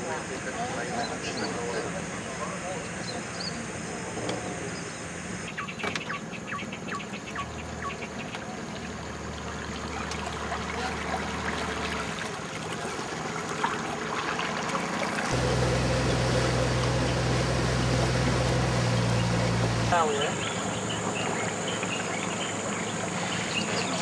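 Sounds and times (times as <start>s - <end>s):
bird chirping: 4.7s - 8.3s, 18.9s - 24.0s
motorboat engine running: 7.5s - 24.0s
water rushing along hull: 7.7s - 24.0s.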